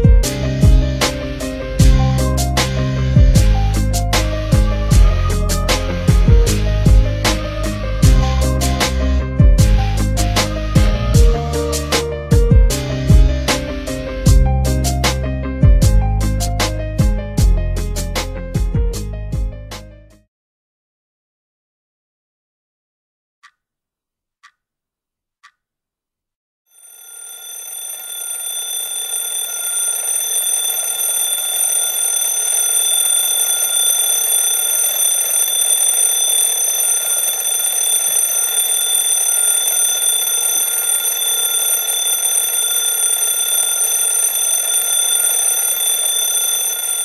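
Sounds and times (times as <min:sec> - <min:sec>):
alarm clock bells ringing: 0:26.8 - 0:47.0
alarm clock ticking: 0:26.8 - 0:47.0.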